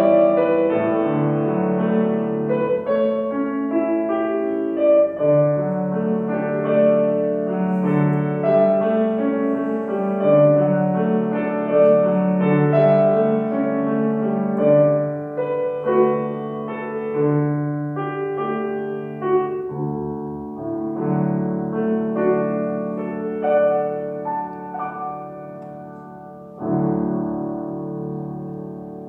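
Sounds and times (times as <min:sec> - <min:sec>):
grand piano playing: 0:00.0 - 0:29.0.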